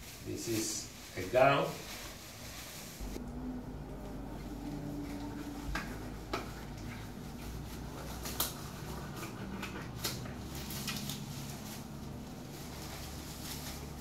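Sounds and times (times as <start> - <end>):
steady low hum: 3.0 - 14.0
gloves rustling and snapping: 5.0 - 14.0.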